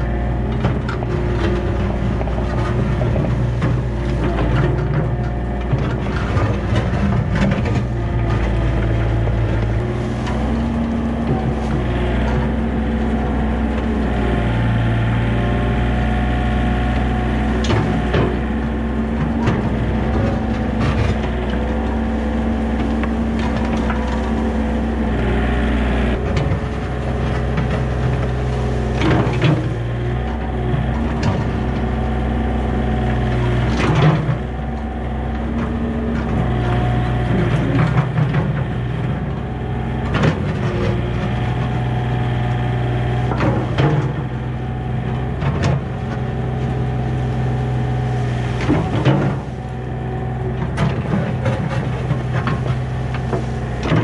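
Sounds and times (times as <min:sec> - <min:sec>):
bucket scraping leaves and dirt: 0:00.0 - 0:14.6, 0:15.2 - 0:54.0
diesel engine running: 0:00.0 - 0:54.0
metal clanks and knocks: 0:48.4 - 0:49.7, 0:50.3 - 0:54.0.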